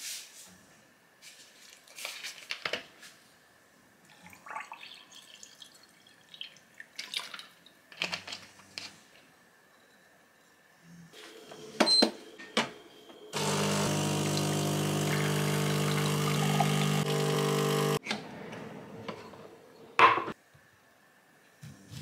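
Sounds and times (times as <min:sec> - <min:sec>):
water pouring into glass: 0:04.1 - 0:06.6, 0:14.0 - 0:17.3.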